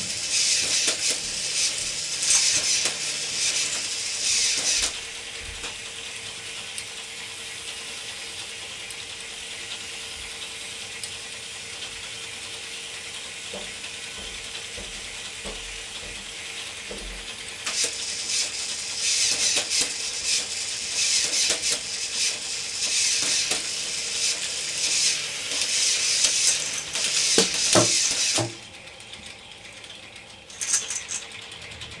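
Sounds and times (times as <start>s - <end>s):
plastic gears clicking and rattling: 0.0s - 5.0s, 17.7s - 32.0s
motor whirring: 17.7s - 29.1s.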